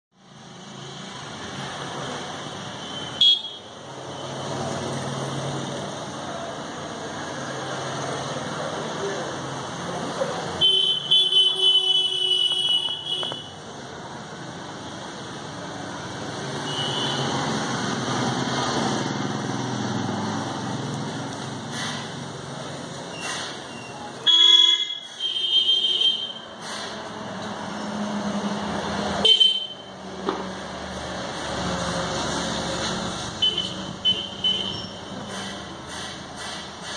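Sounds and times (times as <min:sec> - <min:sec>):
steady background noise: 0:00.2 - 0:36.9
vehicle engine passing: 0:17.2 - 0:23.5, 0:30.0 - 0:36.9.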